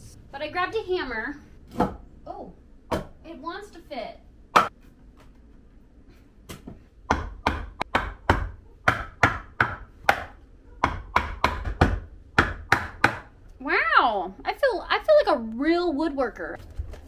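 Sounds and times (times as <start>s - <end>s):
hammer striking wooden board: 6.6s - 13.3s.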